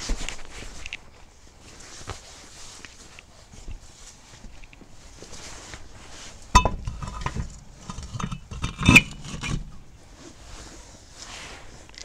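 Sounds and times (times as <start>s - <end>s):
metal tools clanking on concrete: 6.5s - 10.2s.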